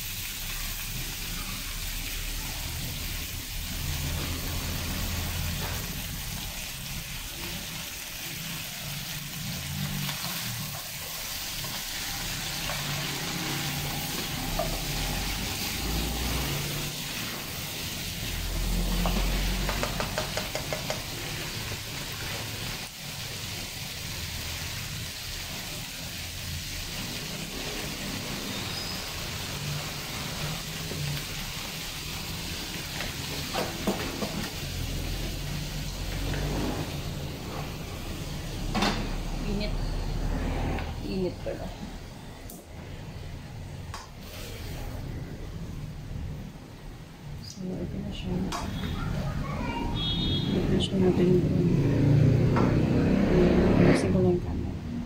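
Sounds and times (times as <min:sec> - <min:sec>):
meat sizzling in frying pan: 0:00.0 - 0:39.6.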